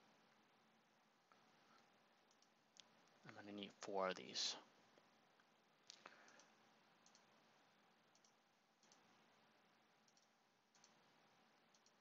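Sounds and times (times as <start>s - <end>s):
faint computer mouse clicks: 1.3s - 2.9s, 5.4s - 7.3s, 8.1s - 9.1s, 10.0s - 11.0s, 11.7s - 12.0s.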